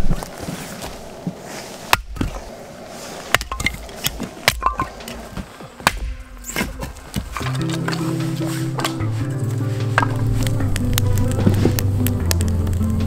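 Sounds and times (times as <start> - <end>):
low rumble: 7.6 - 13.0.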